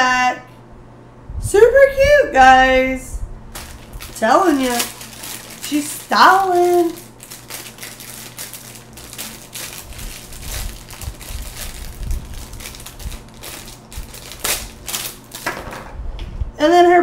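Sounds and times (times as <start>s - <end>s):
plastic bag crinkling: 3.5s - 15.8s.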